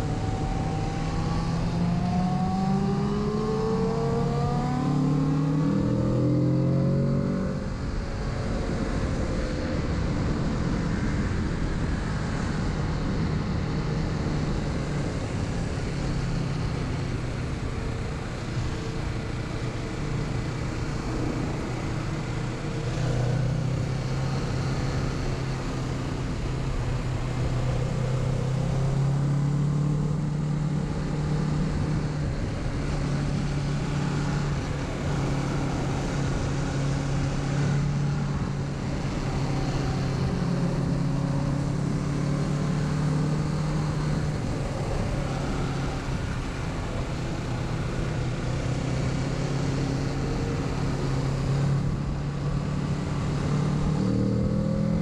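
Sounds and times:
motorcycle engine cruising: 0.0 - 55.0.

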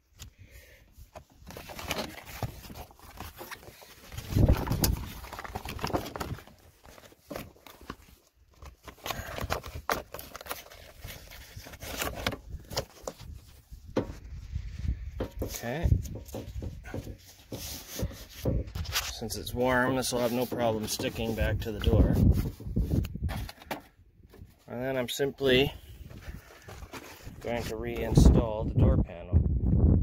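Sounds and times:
plastic sheet crinkling: 1.4 - 13.6.

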